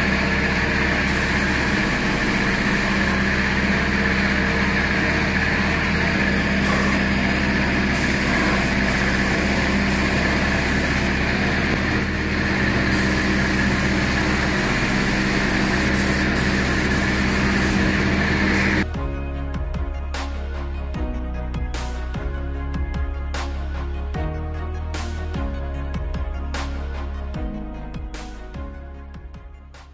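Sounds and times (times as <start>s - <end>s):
air hissing: 0.0s - 18.9s
air compressor motor humming: 0.0s - 19.0s.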